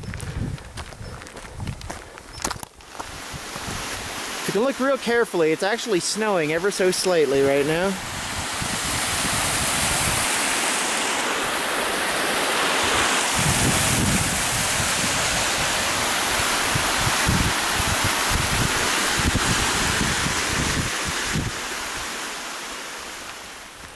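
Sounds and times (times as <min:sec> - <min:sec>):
wind buffeting microphone: 0:00.0 - 0:04.3, 0:07.3 - 0:10.6, 0:11.4 - 0:22.1
waterfall rushing over rock: 0:02.9 - 0:23.9.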